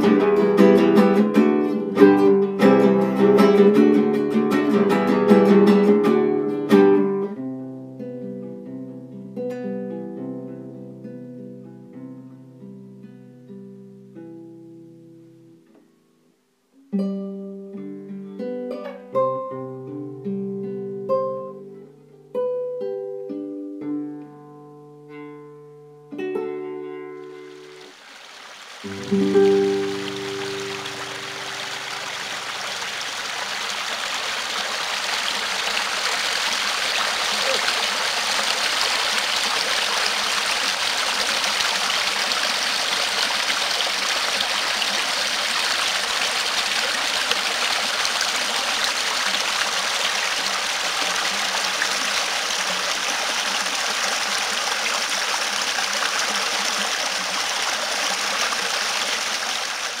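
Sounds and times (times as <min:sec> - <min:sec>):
stream flowing: 0:00.0 - 0:07.2, 0:27.1 - 1:00.0.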